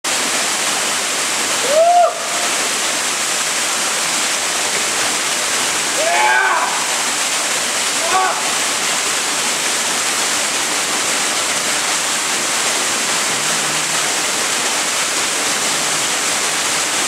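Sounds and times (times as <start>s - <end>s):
waterfall pouring onto rock: 0.1s - 17.0s
person calling out: 8.0s - 8.5s.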